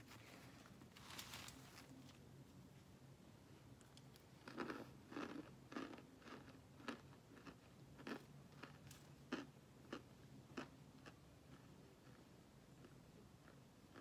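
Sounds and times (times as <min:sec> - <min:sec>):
cornstarch chunks crunching: 0:04.4 - 0:14.0.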